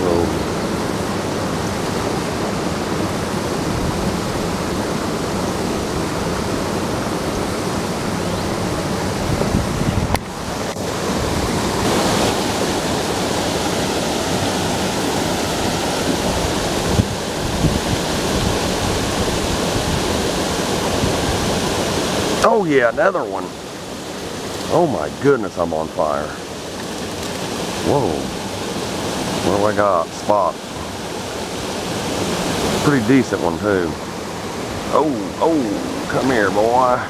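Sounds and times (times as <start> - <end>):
waterfall rushing over rocks: 0.0 - 37.0.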